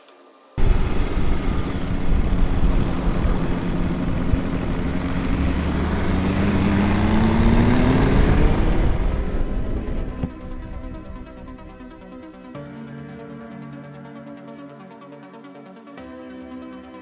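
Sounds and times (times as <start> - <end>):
wind noise on microphone: 0.6 - 12.0
motorcycle engine accelerating: 0.6 - 12.2.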